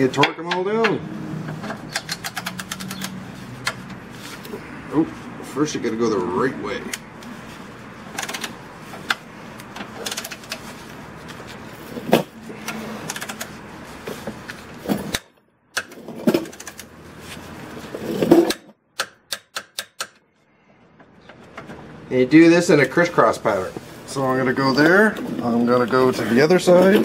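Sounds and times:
torque wrench ratcheting clicks: 0:01.9 - 0:03.8.

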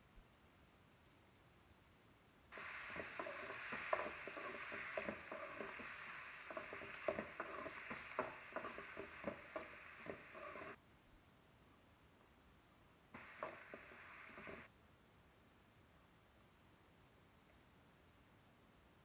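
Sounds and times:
vegetables sizzling in oil: 0:02.5 - 0:10.8, 0:13.2 - 0:14.7
utensil scraping and knocking pan: 0:02.6 - 0:10.8, 0:13.2 - 0:14.7.

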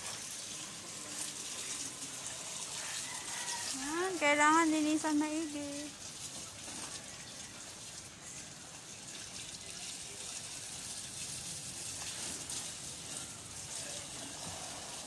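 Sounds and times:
running water splashing in a basin: 0:00.0 - 0:15.0.

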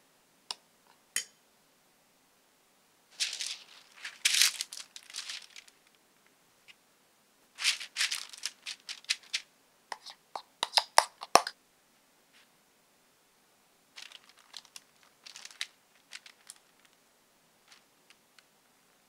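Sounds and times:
parchment paper rustling: 0:03.1 - 0:06.0, 0:07.6 - 0:10.2, 0:14.0 - 0:17.0, 0:17.6 - 0:18.4.

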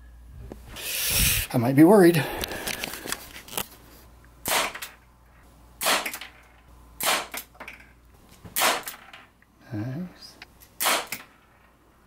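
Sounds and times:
air pistol shots popping: 0:04.4 - 0:05.0, 0:05.8 - 0:06.3, 0:07.0 - 0:07.6, 0:08.5 - 0:09.0, 0:10.8 - 0:11.3.

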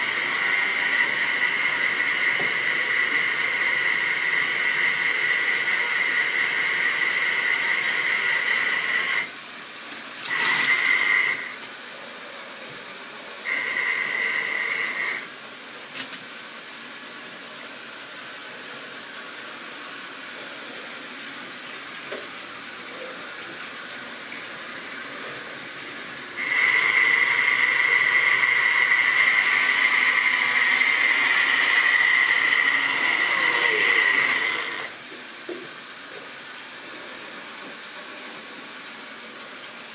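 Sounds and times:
model train motor whining: 0:00.0 - 0:09.3, 0:10.2 - 0:11.7, 0:13.4 - 0:15.3, 0:26.4 - 0:35.0.

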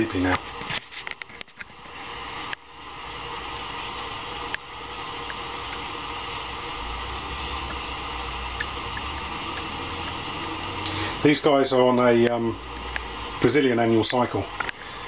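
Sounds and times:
machine-like room hiss: 0:00.0 - 0:15.0
low hum: 0:03.0 - 0:11.3.

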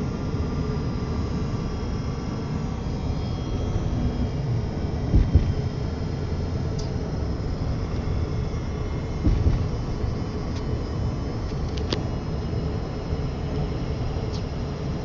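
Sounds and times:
car tyre and engine rumble: 0:01.3 - 0:15.0
thump: 0:05.1 - 0:05.7, 0:09.2 - 0:09.8.

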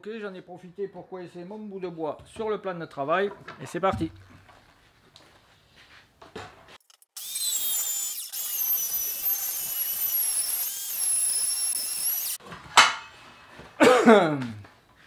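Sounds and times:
circular saw cutting wood: 0:06.9 - 0:12.4.

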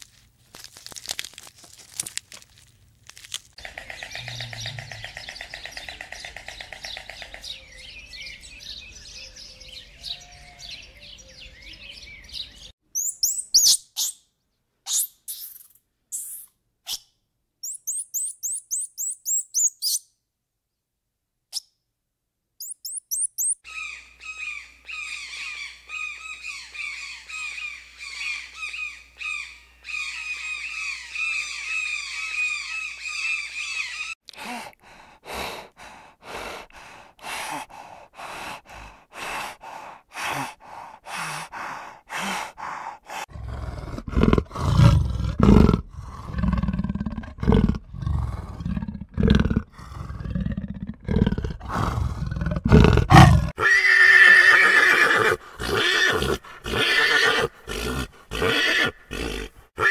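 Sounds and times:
loud deep animal calls: 0:03.6 - 0:07.5
pony whinnying: 0:52.7 - 0:59.9.

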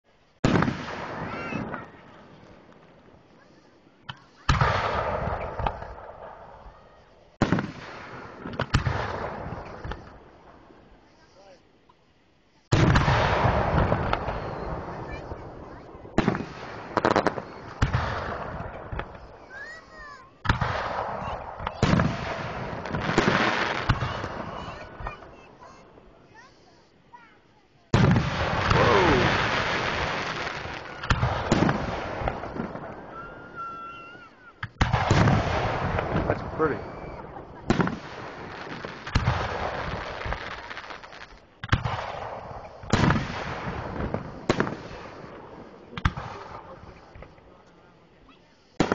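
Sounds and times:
firework shells booming: 0:00.4 - 0:11.2, 0:12.7 - 0:26.8, 0:27.9 - 0:47.5
firework shells bursting: 0:27.9 - 0:47.5.

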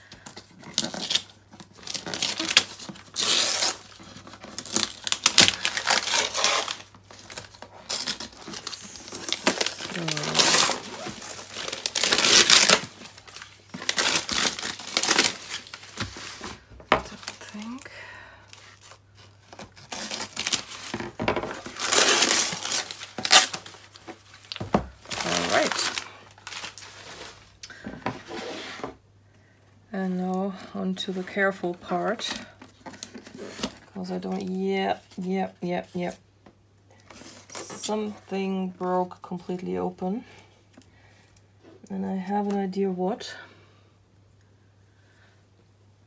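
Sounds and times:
wrapping paper ripping: 0:00.6 - 0:17.8, 0:18.5 - 0:27.6.

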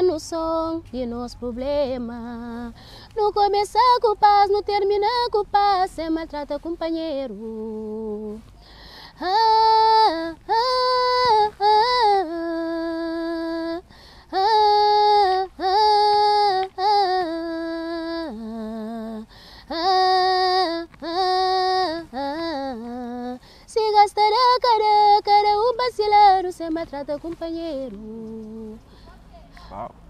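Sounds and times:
woman singing unaccompanied: 0:00.0 - 0:29.7.

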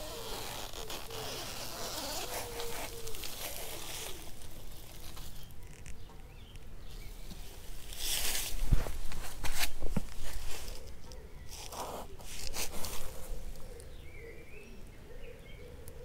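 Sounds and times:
outdoor ambience: 0:00.0 - 0:16.0
rustles and knocks: 0:07.3 - 0:10.9.

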